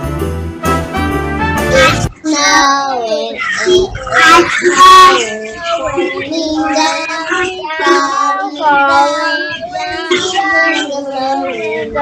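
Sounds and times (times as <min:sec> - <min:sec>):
children singing together: 0:01.7 - 0:12.0.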